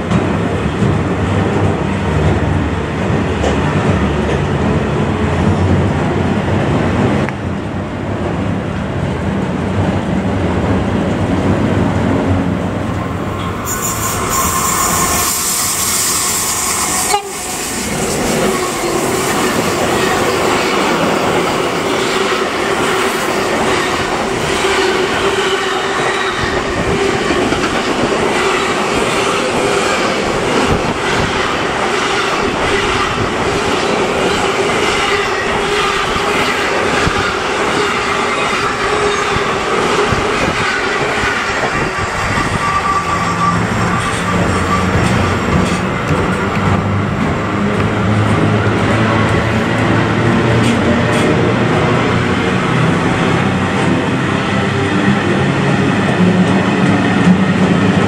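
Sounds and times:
wheels clickety-clack on rail joints: 0.0s - 7.5s, 8.1s - 58.0s
freight train rolling past: 0.0s - 58.0s
steady tone: 11.4s - 19.9s.

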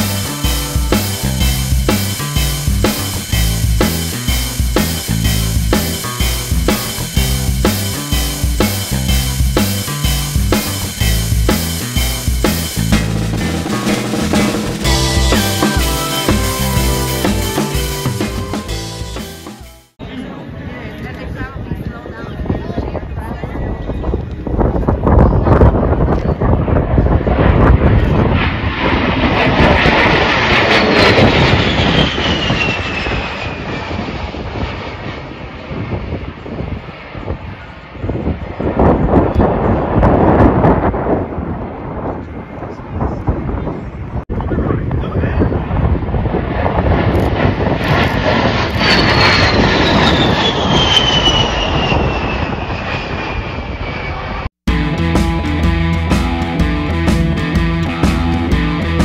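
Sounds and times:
high jet whine: 0.0s - 20.8s, 26.9s - 42.4s, 45.5s - 59.0s
jet roar: 0.0s - 59.0s
jet flyby with falling whine: 26.6s - 44.2s, 45.5s - 54.6s.

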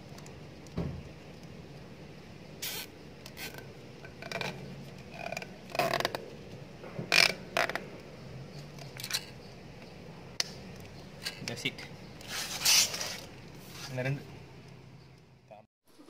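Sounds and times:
gloves rubbing on cable: 12.2s - 14.1s.

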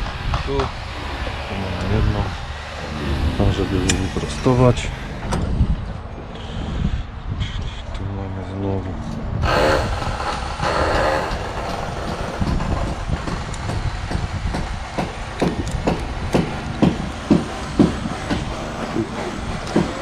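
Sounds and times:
low rumble: 0.9s - 6.3s
regular knocks: 11.2s - 20.0s.

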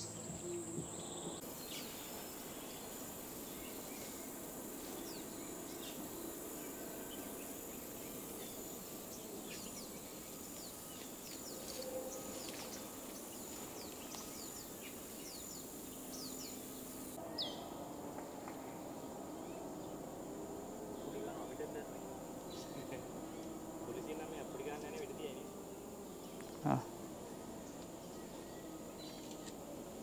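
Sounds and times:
insect drone: 0.0s - 30.0s.

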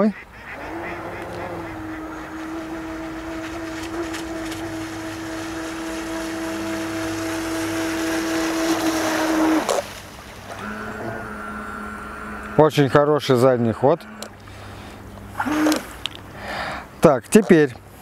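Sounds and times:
electric motors whining: 0.6s - 9.9s, 10.5s - 13.0s, 15.4s - 15.9s.

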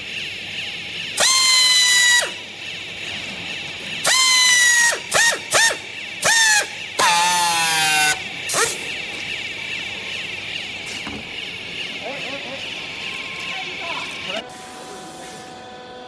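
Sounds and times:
air motor whine with hiss: 0.0s - 16.0s.

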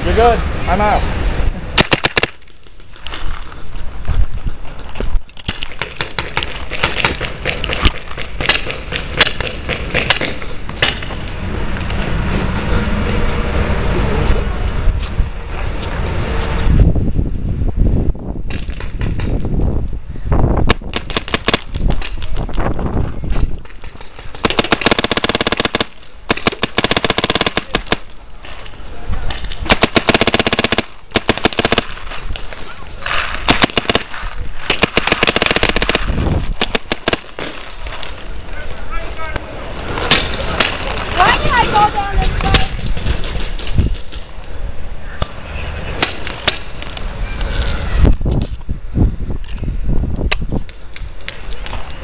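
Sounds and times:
paintball markers firing: 1.8s - 2.6s, 5.4s - 11.2s, 20.7s - 22.4s, 23.6s - 28.2s, 29.3s - 38.1s.

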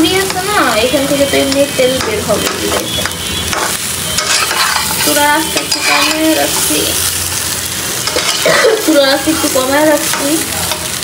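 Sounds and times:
meat sizzling in a frying pan: 0.0s - 11.0s
metal spatula scraping pan: 1.4s - 7.0s, 8.0s - 9.0s.

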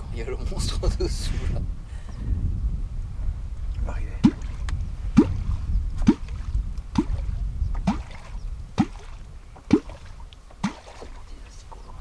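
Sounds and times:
hollow water bloops: 4.2s - 11.6s.

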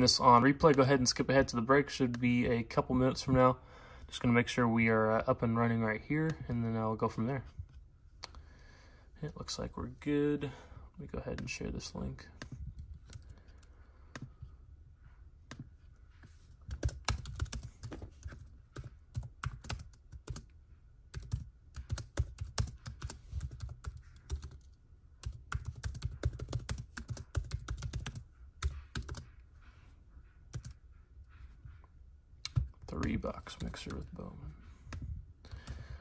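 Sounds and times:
laptop keyboard typing: 12.3s - 14.4s, 15.5s - 15.7s, 16.6s - 29.4s, 30.5s - 30.8s, 32.5s - 34.1s, 34.9s - 35.9s.

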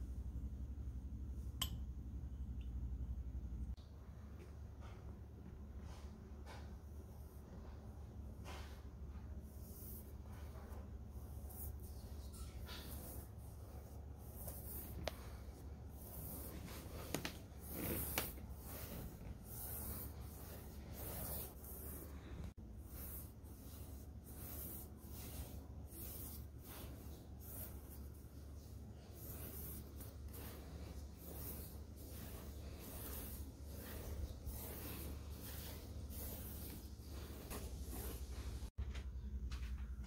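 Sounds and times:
steady low hum: 0.0s - 40.0s
brush swishing on canvas: 8.4s - 38.8s.

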